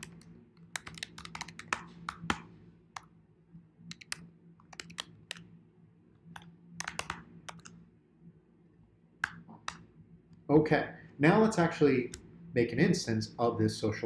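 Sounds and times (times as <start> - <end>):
typing on computer keyboard: 0.0 - 3.1, 3.9 - 5.5, 6.3 - 7.8
faint low hum: 0.0 - 14.0.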